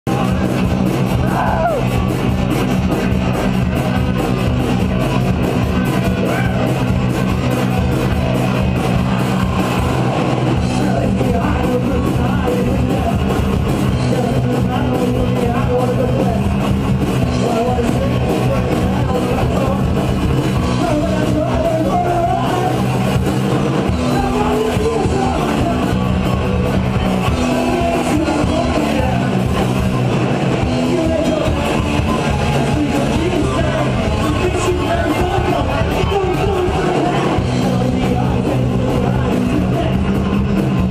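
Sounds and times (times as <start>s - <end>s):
bass guitar: 0.0s - 40.9s
electric guitars: 0.1s - 40.9s
pounding drums: 0.1s - 40.9s
person shouting vocals: 1.2s - 1.9s.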